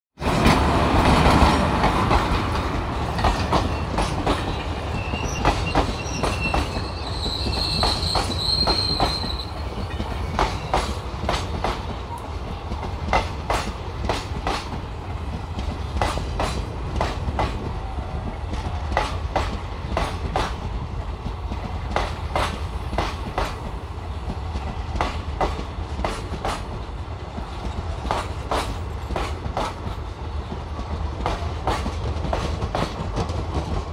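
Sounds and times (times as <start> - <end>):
train wheels clickety-clack: 0.2 - 33.9
high wheel squeal: 3.6 - 11.0.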